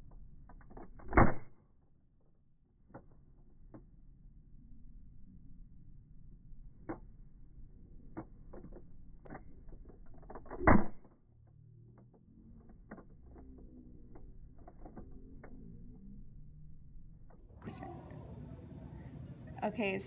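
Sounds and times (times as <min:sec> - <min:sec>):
foam dart gun pop: 0:01.0 - 0:01.5, 0:10.5 - 0:11.0.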